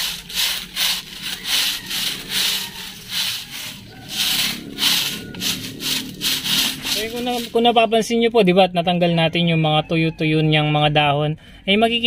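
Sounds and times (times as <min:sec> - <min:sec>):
broom swishing leaves: 0:00.0 - 0:07.9.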